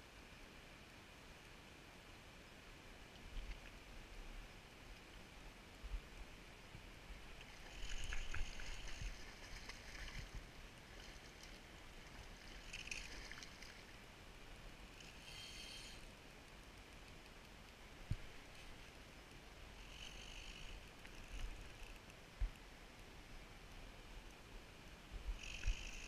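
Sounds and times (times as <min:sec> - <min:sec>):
fishing reel drag buzzing: 0:07.7 - 0:09.2, 0:15.0 - 0:16.1, 0:19.8 - 0:21.9, 0:25.4 - 0:26.0.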